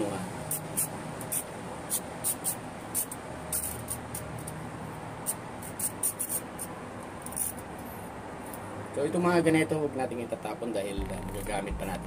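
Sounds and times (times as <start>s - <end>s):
low steady hum: 11.0s - 12.0s.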